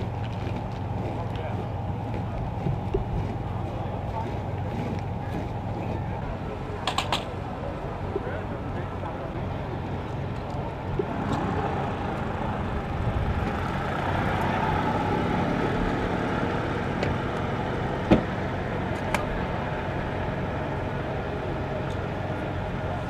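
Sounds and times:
cars idling: 0.0s - 23.0s
sharp thump: 18.1s - 18.3s.

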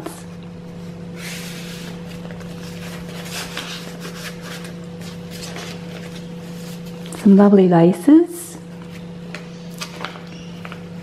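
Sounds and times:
steady low hum: 0.0s - 11.0s
paper pages rustling: 1.2s - 7.1s.

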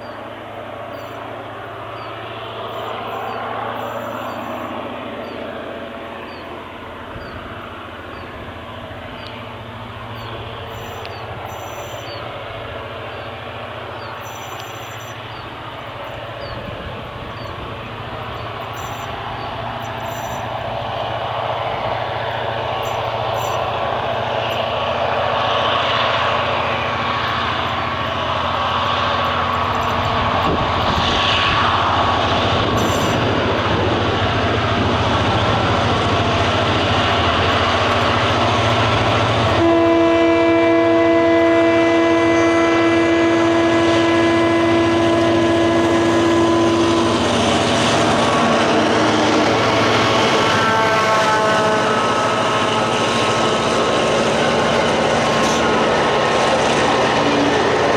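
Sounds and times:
diesel locomotive engine: 0.0s - 57.9s
train horn chord: 39.5s - 47.3s, 50.3s - 53.0s.

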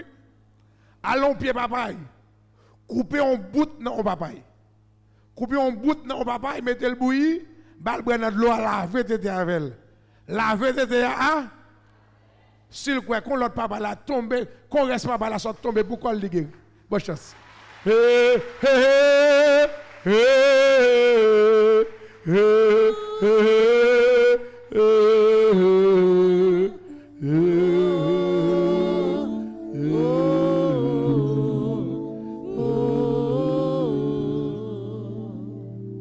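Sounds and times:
person singing worship song: 17.2s - 36.0s
several voices singing together: 17.9s - 35.8s.

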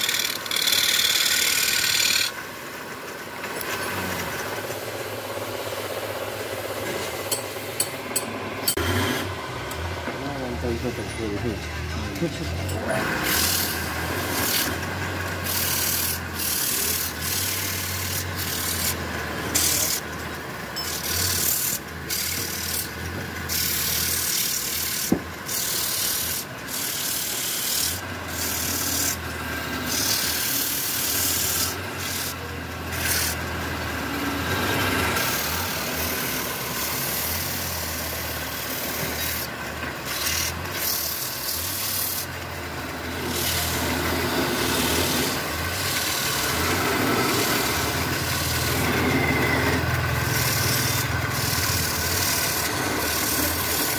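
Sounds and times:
sandpaper rasping on wood: 0.0s - 2.4s, 12.9s - 20.1s, 20.9s - 29.2s, 29.8s - 33.6s, 34.8s - 42.3s, 43.2s - 53.9s
lathe motor humming: 0.0s - 53.9s.

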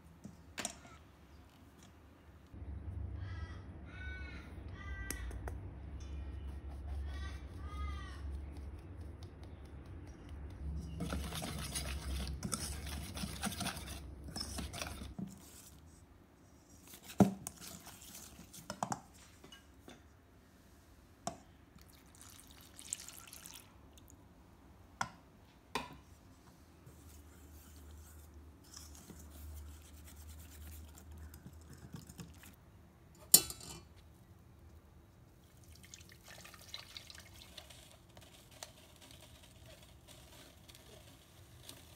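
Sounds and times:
rustling and scraping in bowl: 10.6s - 19.8s, 26.3s - 32.6s, 36.8s - 41.9s
liquid pouring and dripping: 21.8s - 24.2s, 35.4s - 38.1s.

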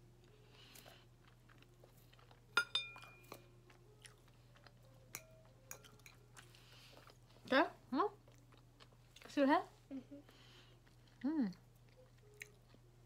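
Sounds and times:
soft chewing: 0.0s - 13.0s
cutlery noises: 2.6s - 3.4s
fork clinking on plate: 2.6s - 3.4s.

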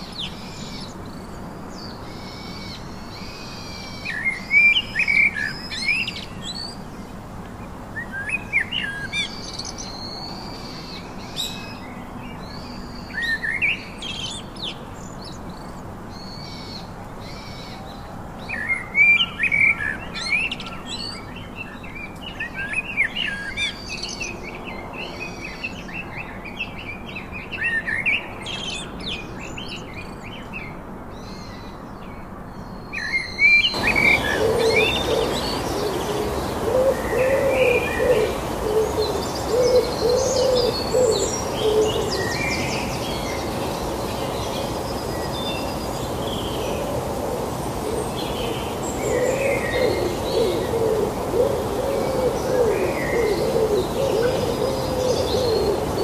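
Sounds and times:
blackbird singing: 32.6s - 46.8s, 47.9s - 56.0s.

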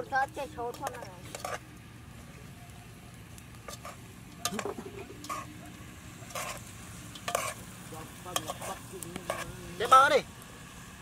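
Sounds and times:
metal spoon scraping a pot: 0.7s - 1.6s, 3.6s - 5.6s, 6.2s - 7.7s, 8.3s - 9.6s.

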